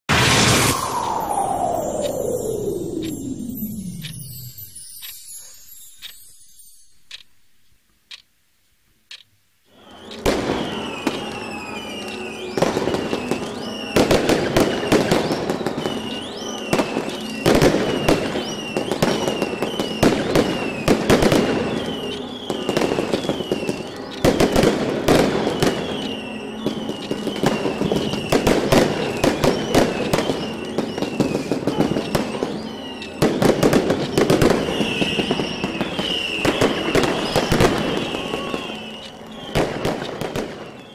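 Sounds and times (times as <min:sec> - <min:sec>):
fireworks bangs and crackling: 0:00.1 - 0:05.0, 0:09.8 - 0:40.9
fireworks whistles: 0:00.1 - 0:06.8, 0:09.7 - 0:40.9
sharp clicks: 0:00.5 - 0:07.4, 0:08.1 - 0:08.3, 0:09.1 - 0:09.4.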